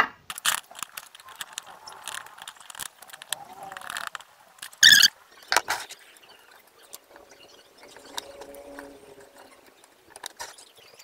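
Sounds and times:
wires clicking and rattling: 0.2 - 11.0.

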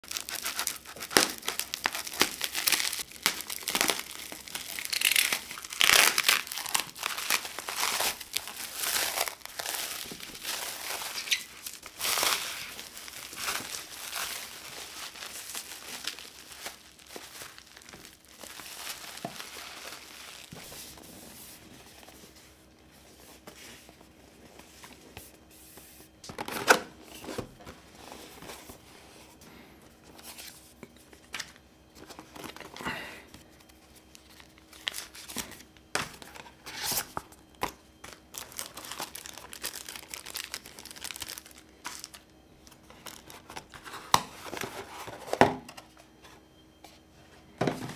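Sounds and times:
bubble wrap crinkling: 0.0 - 22.1, 33.6 - 45.4
paper rustling: 0.0 - 22.3.

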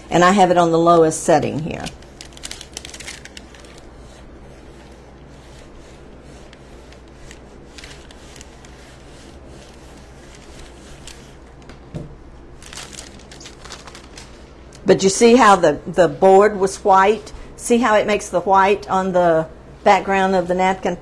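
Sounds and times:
iron rubbing over paper: 0.0 - 11.6.

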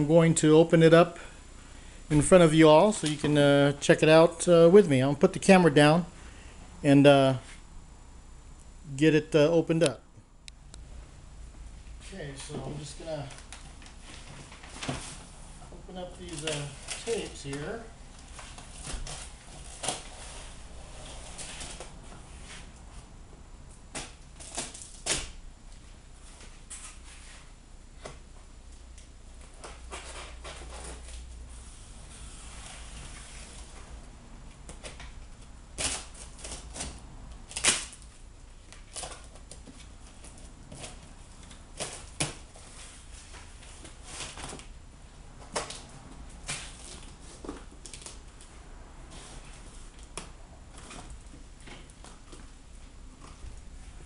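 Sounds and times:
low steady hum: 0.0 - 54.0
cardboard rustling and scraping: 12.0 - 23.0, 29.4 - 34.0, 38.7 - 44.8, 45.5 - 54.0.

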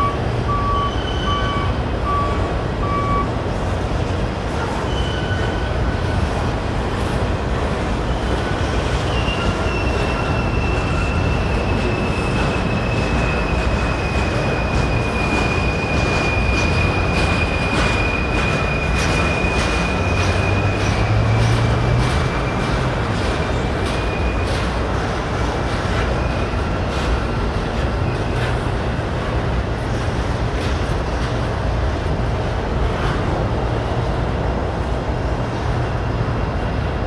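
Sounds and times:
high wheel squeal: 0.0 - 3.0, 4.6 - 6.3, 8.0 - 25.0
train cars rumbling on rails: 0.0 - 37.0
sharp clicks from wheels: 12.4 - 26.2.

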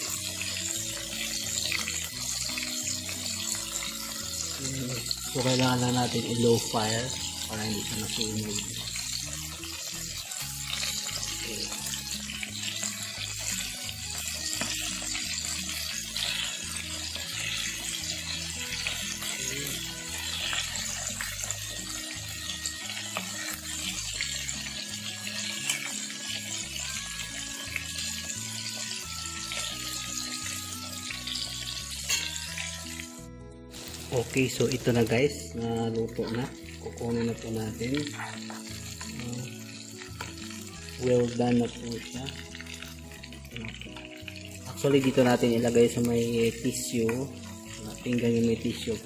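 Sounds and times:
fish sizzling in oil: 0.0 - 49.0
soft background music: 0.0 - 49.0.

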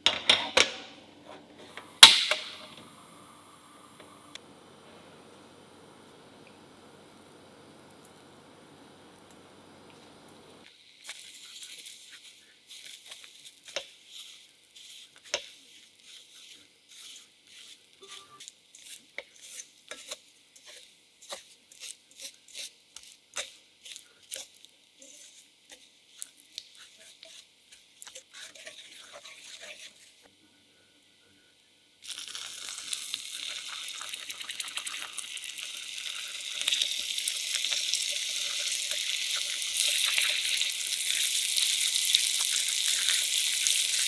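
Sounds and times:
wooden spoon scraping a pan: 11.0 - 30.3.

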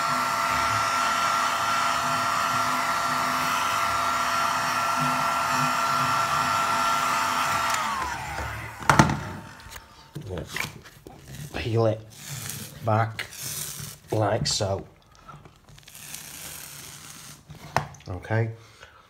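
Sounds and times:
heat gun motor winding down: 0.0 - 10.1
heat gun blowing: 0.0 - 10.2.

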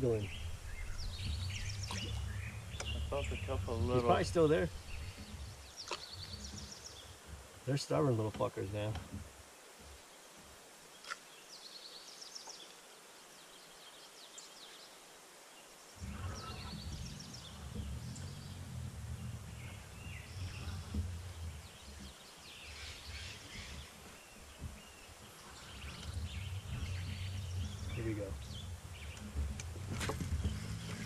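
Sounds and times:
low steady rumble: 0.0 - 9.4, 16.0 - 31.0
small birds chirping: 0.0 - 31.0.

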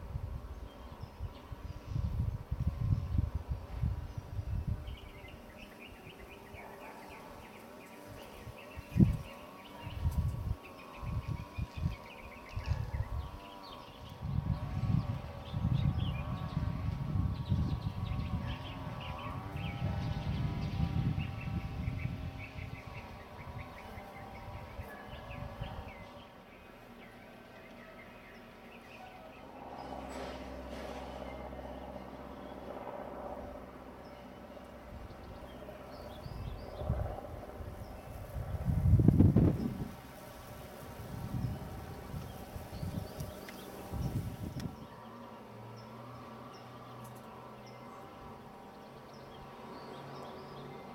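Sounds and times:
wind buffeting microphone: 0.0 - 6.6, 7.2 - 26.2, 34.8 - 44.9
small birds chirping: 0.0 - 32.8, 33.4 - 50.9
flying insect buzzing: 1.5 - 26.4.

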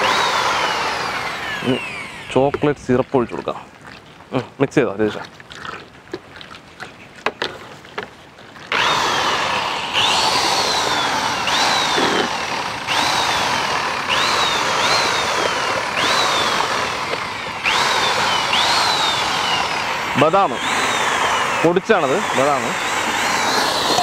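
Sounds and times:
electric mixer motor whine: 0.0 - 3.0, 8.7 - 24.0
liquid splashing: 2.4 - 12.8, 13.4 - 21.8.

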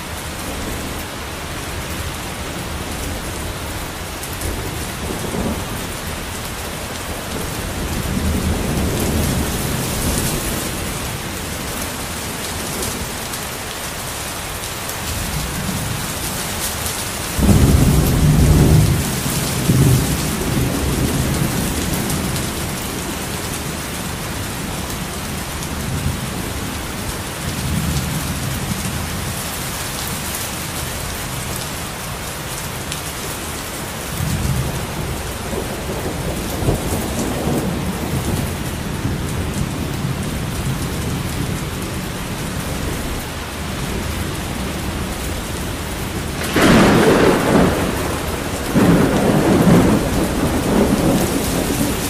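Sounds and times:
heavy rain: 0.0 - 52.0
rolling thunder: 17.4 - 26.8, 34.1 - 41.8, 43.9 - 52.0
loud thunderclap: 35.5 - 39.6, 46.3 - 52.0.

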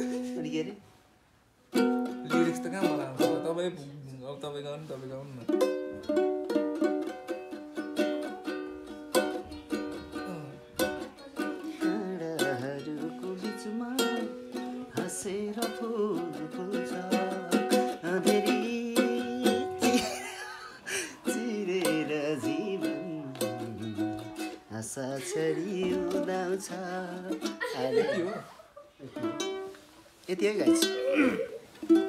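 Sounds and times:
person singing: 0.0 - 0.4, 9.8 - 28.5
ukulele strumming: 0.0 - 0.8, 1.7 - 3.9, 5.3 - 28.5, 29.1 - 32.0.

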